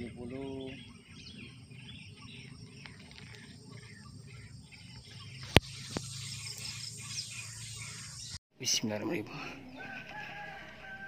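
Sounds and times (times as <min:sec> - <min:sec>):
small birds chirping: 0:00.0 - 0:08.4.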